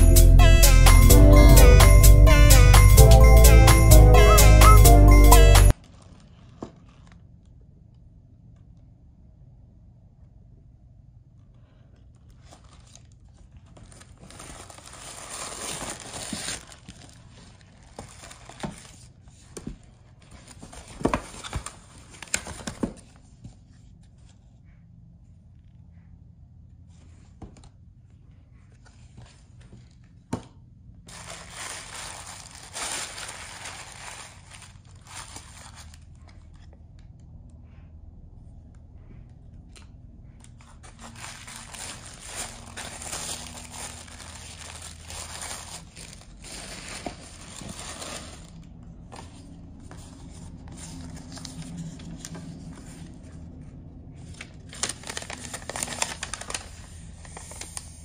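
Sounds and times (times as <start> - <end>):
paper rustling and crinkling: 5.7 - 7.4, 11.7 - 24.4, 31.1 - 36.7, 40.5 - 53.4, 54.2 - 58.0.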